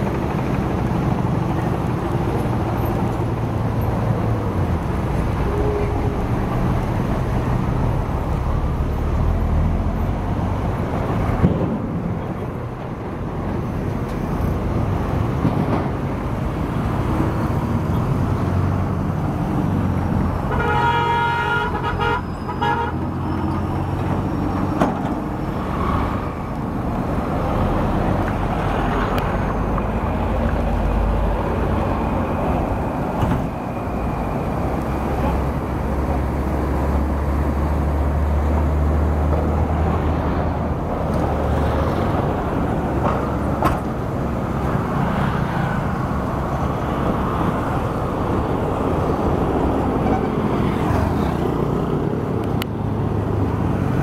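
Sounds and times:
road traffic rumble: 0.0s - 54.0s
vehicle horn honking: 20.5s - 23.0s.

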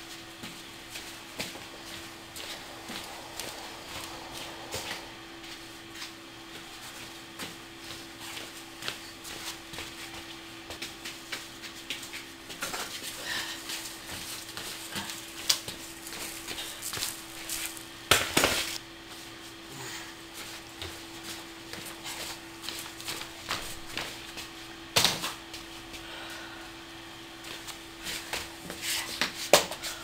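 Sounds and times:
footsteps on tiled floor: 0.0s - 19.6s, 20.3s - 24.8s
faint steady hum: 0.0s - 30.0s.

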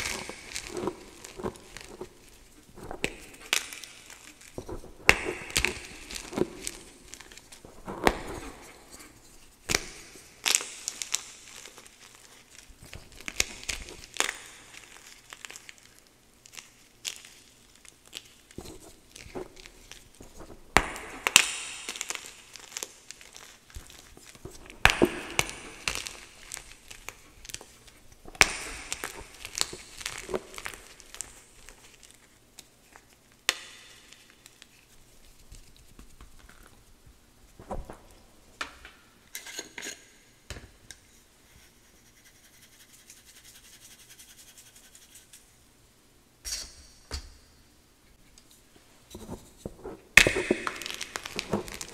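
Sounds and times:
chalk crunching and crumbling: 0.0s - 32.3s, 49.1s - 51.9s.

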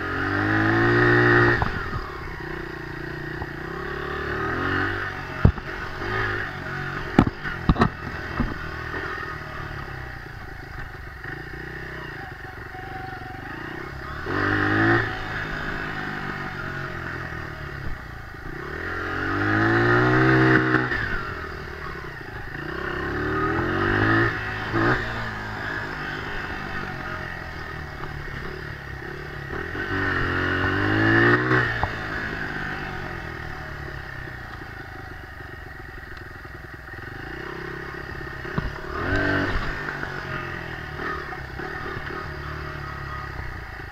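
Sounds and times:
dirt bike engine revving: 0.0s - 43.9s.

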